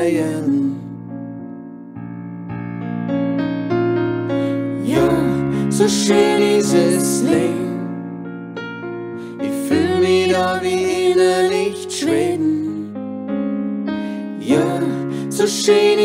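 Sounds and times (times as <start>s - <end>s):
person singing: 0.0s - 1.1s, 4.5s - 8.0s, 9.3s - 13.0s, 14.2s - 16.0s.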